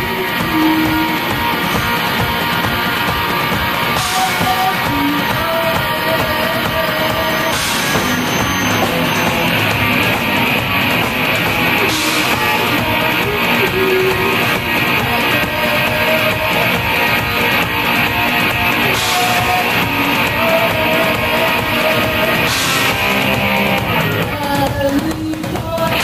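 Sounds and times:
woman singing: 0.0 - 2.2, 3.9 - 8.7, 11.7 - 17.3, 18.8 - 22.5, 24.2 - 26.0
drum kit: 0.0 - 26.0
electric guitars: 0.0 - 26.0.

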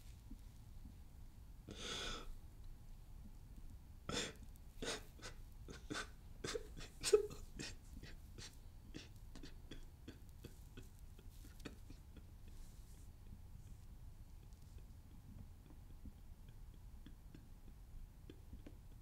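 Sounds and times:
man sobbing: 4.1 - 12.8.

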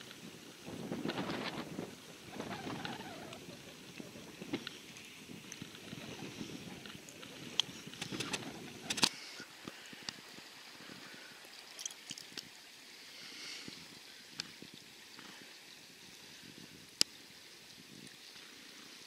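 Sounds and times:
river water flowing: 0.0 - 19.0
faint clicks: 2.4 - 10.2.

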